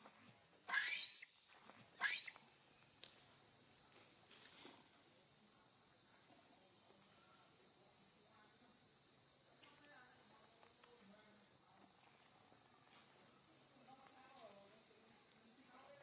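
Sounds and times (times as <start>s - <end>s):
high insect drone: 0.0s - 16.0s
monkey shrieking: 0.7s - 1.3s, 2.0s - 2.3s.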